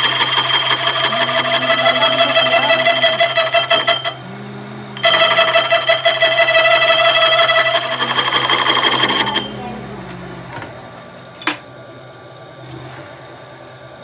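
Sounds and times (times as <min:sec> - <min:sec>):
metal squealing on lathe: 0:00.0 - 0:10.7
lathe running hum: 0:00.0 - 0:12.7.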